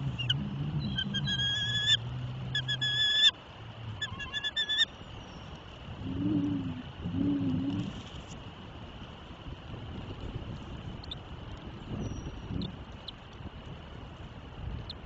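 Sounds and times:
eagles calling with chattering notes: 0.0 - 3.4, 4.0 - 4.9.

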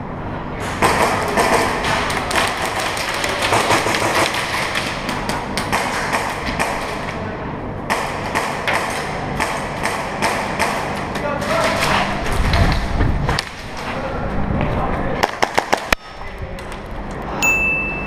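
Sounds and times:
airsoft gunfire: 0.8 - 7.0, 7.9 - 10.9, 15.2 - 16.0
pellets striking plywood walls: 0.8 - 7.1.

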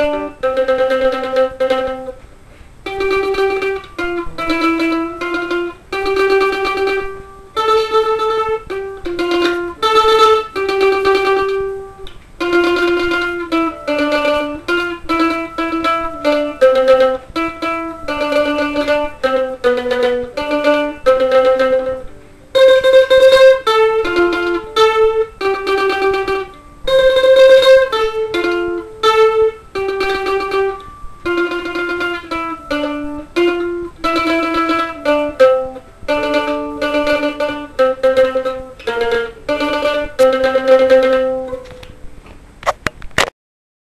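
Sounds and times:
plucked string instrument melody: 0.0 - 43.3.

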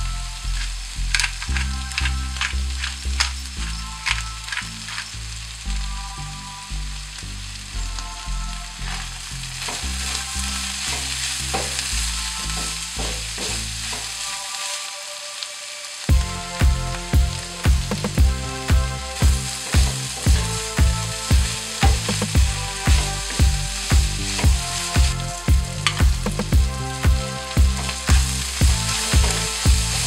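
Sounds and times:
food sizzling in a frying pan: 0.0 - 30.0
wooden spoon scraping: 8.8 - 14.6, 16.9 - 30.0.

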